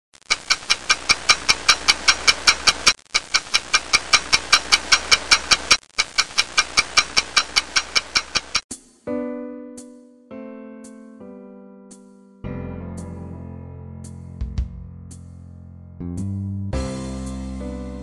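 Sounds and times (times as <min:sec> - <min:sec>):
clock ticking fast: 0:00.2 - 0:08.7.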